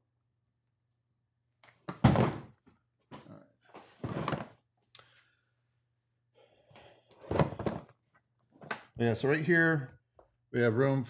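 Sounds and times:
tool bag thunks: 2.0 - 2.5.

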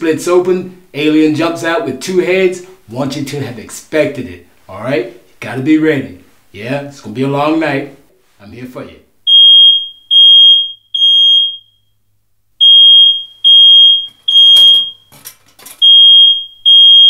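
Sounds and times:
smoke alarm beeping: 9.3 - 12.0, 12.6 - 17.0.

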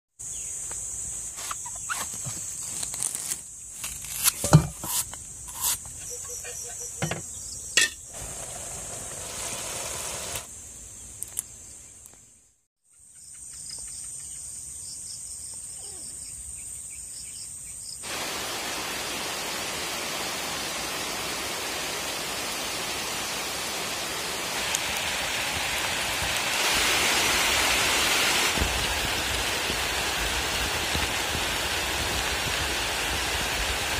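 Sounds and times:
insects trilling: 0.2 - 12.2
steady rain: 8.1 - 10.5, 18.0 - 33.9.

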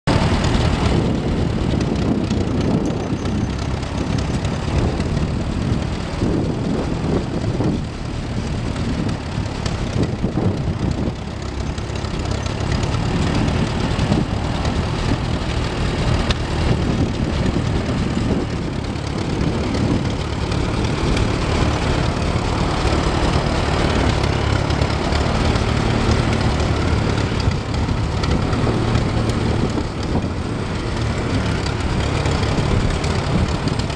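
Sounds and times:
tractor engine running: 0.0 - 33.9.

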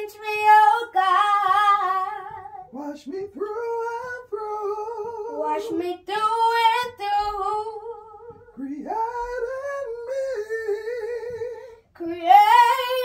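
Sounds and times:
child singing gospel: 5.2 - 8.4.

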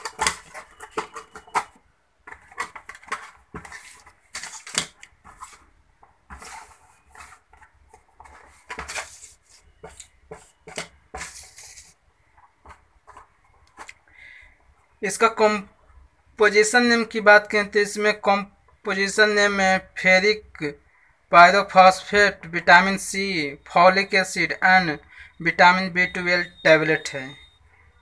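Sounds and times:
boxes clicking and tapping on table: 0.0 - 9.2, 9.8 - 11.4
cardboard flaps rustling: 0.0 - 13.9.

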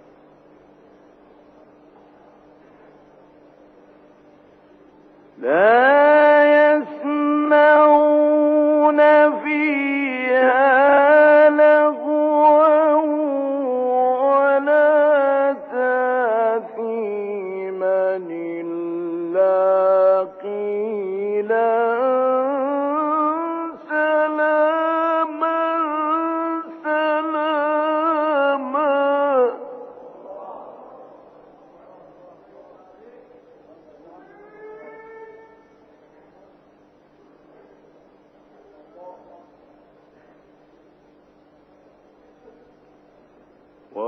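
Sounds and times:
man chanting melodically: 5.4 - 35.8.

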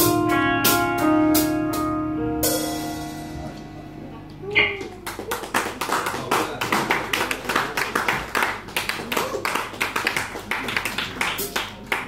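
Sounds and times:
audience clapping: 4.8 - 12.0.

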